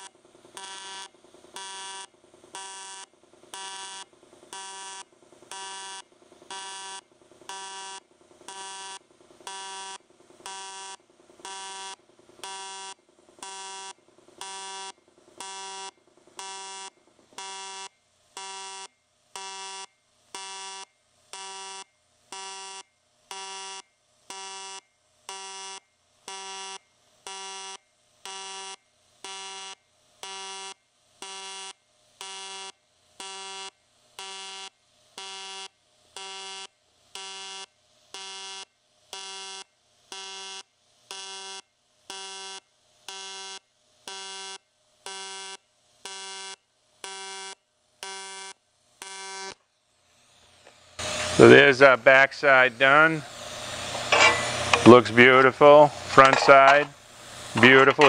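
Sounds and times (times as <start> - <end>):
pulsing welding arc buzz: 0.0 - 58.0.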